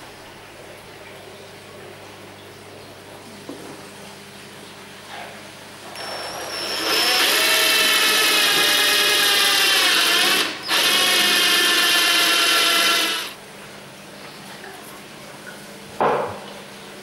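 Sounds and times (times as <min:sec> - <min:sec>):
electric drill boring into wood: 0:06.0 - 0:13.4.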